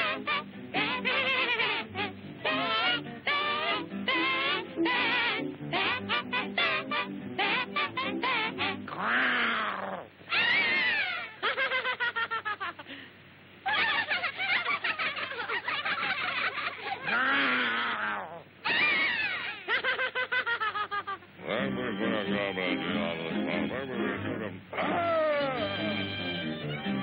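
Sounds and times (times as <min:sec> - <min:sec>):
cartoon lambs bleating: 0:00.0 - 0:11.4.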